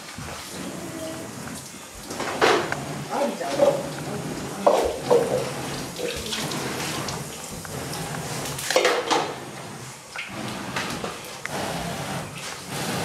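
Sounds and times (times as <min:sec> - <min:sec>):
tap water running into sink: 0:01.4 - 0:09.4
kitchenware knocking against sink: 0:04.6 - 0:05.5.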